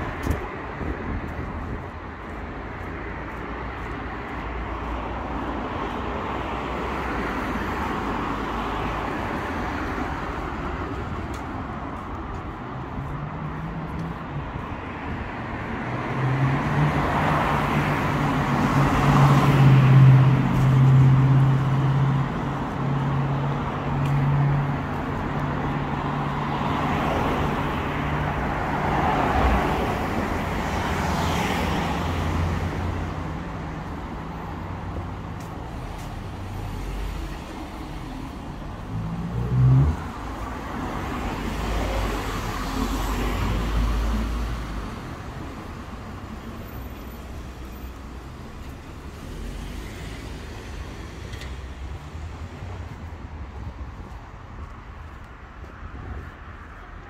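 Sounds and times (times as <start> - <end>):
cars passing: 0.0 - 57.0
low engine hum: 38.1 - 40.3.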